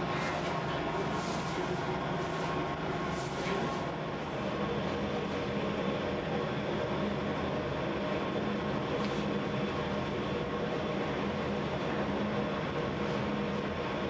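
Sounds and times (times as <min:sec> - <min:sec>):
bakery machinery droning: 0:00.0 - 0:14.0.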